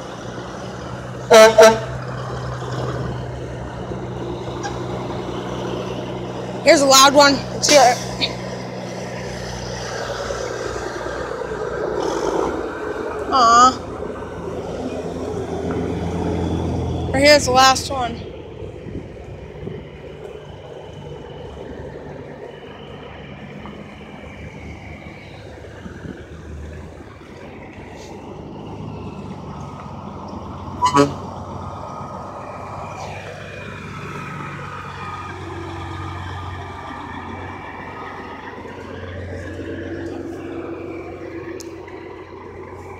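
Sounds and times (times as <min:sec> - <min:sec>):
diesel truck engine passing: 0:00.0 - 0:42.9
traffic passing: 0:00.0 - 0:42.9
truck horn toot: 0:01.2 - 0:02.0, 0:30.8 - 0:31.3.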